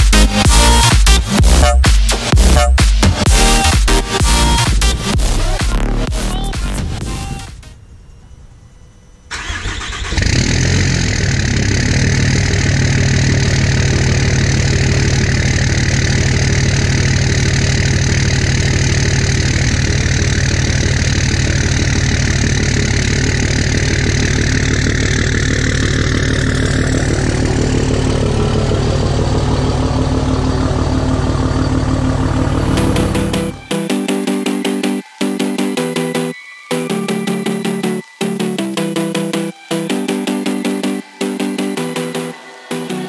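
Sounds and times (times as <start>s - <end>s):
diesel engine cranking and idling: 0.0s - 7.4s, 9.3s - 34.1s.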